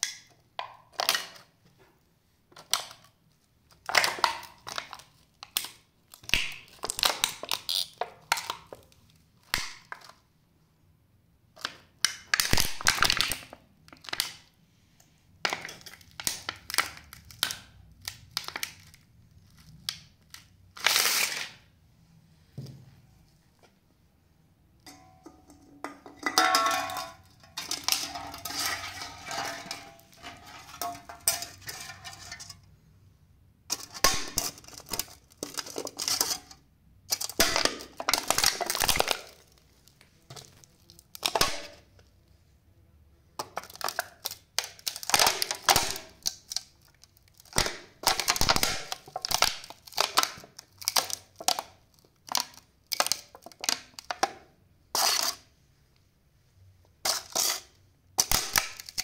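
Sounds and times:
aluminium can crunching underfoot: 0:24.9 - 0:32.6.

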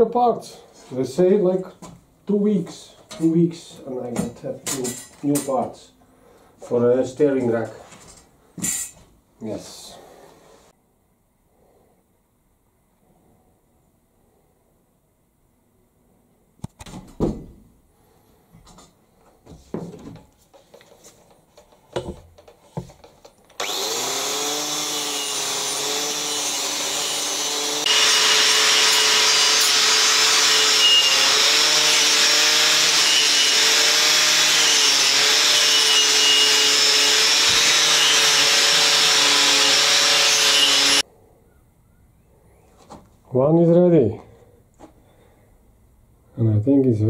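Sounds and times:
power tool running: 0:23.5 - 0:41.0
tool grinding metal: 0:23.6 - 0:41.0.

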